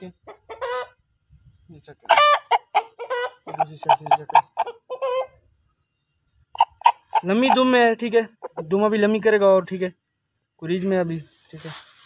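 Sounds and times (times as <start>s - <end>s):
chickens clucking: 0.0s - 1.3s, 1.9s - 9.3s
chicken squawking: 2.1s - 5.4s, 6.6s - 7.8s.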